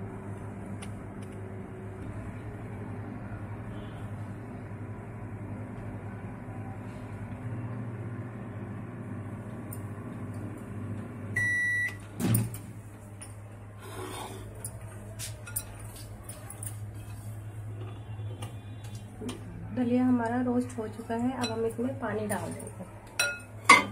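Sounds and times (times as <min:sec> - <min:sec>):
microwave oven humming: 0:00.0 - 0:23.9
microwave beep: 0:11.3 - 0:12.1.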